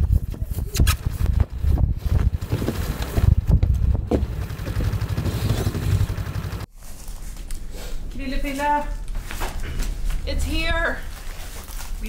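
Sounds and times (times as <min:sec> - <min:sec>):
storm wind buffeting microphone: 0:00.0 - 0:04.4
snowmobile engine running: 0:02.3 - 0:06.7.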